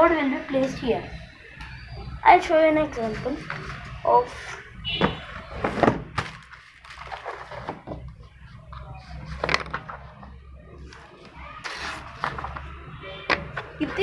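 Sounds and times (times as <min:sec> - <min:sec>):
paper rustling: 0:05.6 - 0:12.8.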